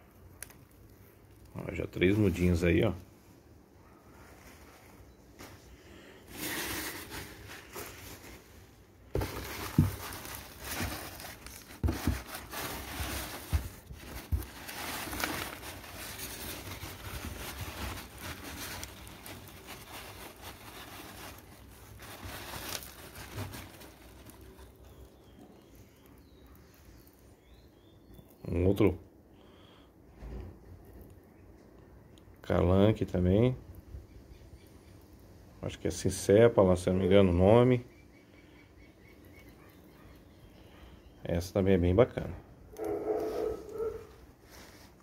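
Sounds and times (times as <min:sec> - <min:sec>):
packing paper rustling: 0:04.2 - 0:27.2.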